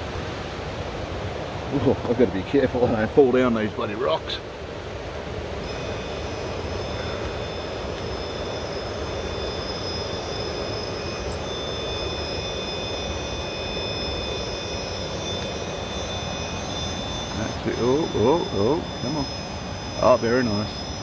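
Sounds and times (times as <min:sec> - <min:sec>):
steady rush of noise: 0:00.0 - 0:21.0
electric motor whining: 0:05.6 - 0:21.0.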